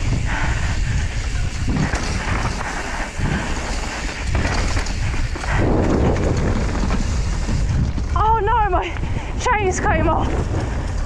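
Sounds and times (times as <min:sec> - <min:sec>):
bike tyres rumbling on dirt: 0:00.0 - 0:11.0
wind buffeting microphone: 0:00.0 - 0:11.0
bike knocks and rattles: 0:01.2 - 0:08.9.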